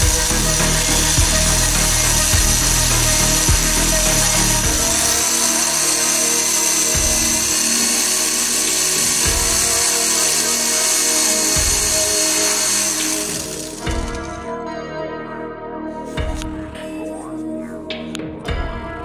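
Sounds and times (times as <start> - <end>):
power drill boring into steel: 0.0 - 14.4
background music with beat: 0.0 - 19.0.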